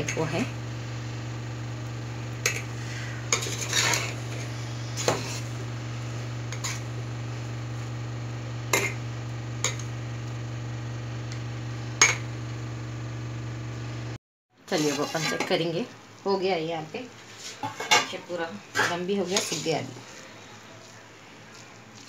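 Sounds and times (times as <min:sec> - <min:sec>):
low hum: 0:00.1 - 0:14.2
metal spoon scraping a pot: 0:02.4 - 0:05.6, 0:06.5 - 0:07.0, 0:08.7 - 0:09.0, 0:14.7 - 0:15.6, 0:18.8 - 0:20.3.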